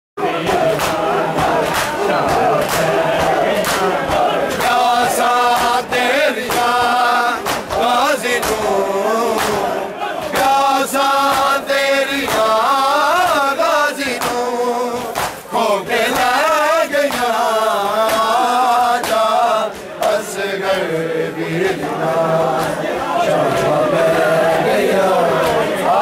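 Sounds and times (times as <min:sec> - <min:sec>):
men chanting in unison: 0:00.2 - 0:26.0
hand slaps on chest: 0:01.6 - 0:04.8, 0:07.4 - 0:08.7, 0:14.2 - 0:14.4, 0:15.0 - 0:15.4.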